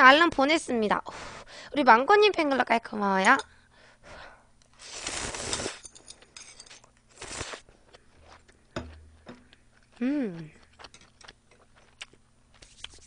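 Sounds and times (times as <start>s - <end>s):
noodles slurped: 4.8s - 5.8s, 7.1s - 7.7s.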